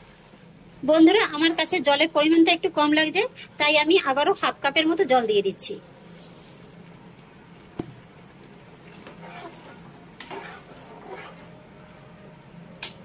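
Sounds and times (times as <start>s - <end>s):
gravy sizzling: 4.4s - 12.6s
metal spatula scraping wok: 9.0s - 11.6s.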